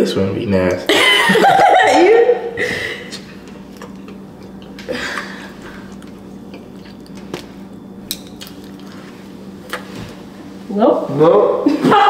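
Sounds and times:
steady low hum: 0.0 - 12.0
person chewing: 3.1 - 9.9.

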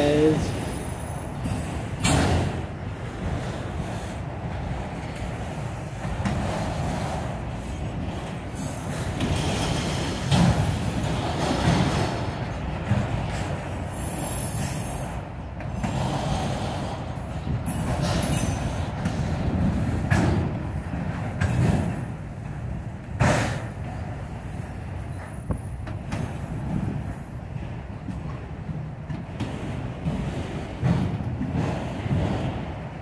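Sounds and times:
train wheels rumbling on rails: 0.0 - 33.0.

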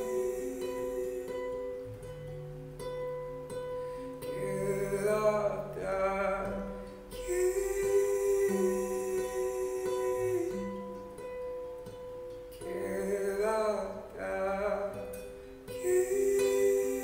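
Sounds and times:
man humming a melody: 0.0 - 2.3, 4.1 - 11.3, 15.7 - 17.0
classical guitar chords: 0.0 - 17.0.

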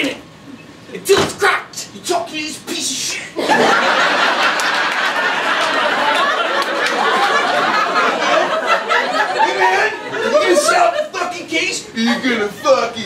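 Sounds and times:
audience laughing: 3.4 - 13.0.

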